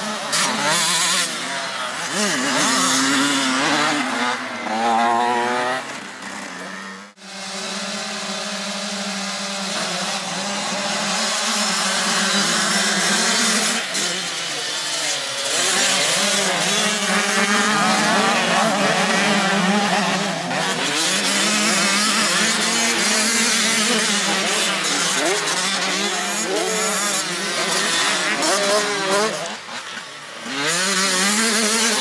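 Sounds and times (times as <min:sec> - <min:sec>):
motocross bikes revving and racing: 0:00.0 - 0:32.0.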